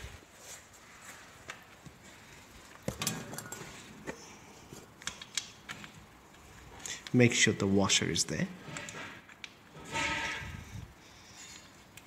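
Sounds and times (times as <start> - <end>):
light metallic clicks and clinks: 2.8 - 3.9.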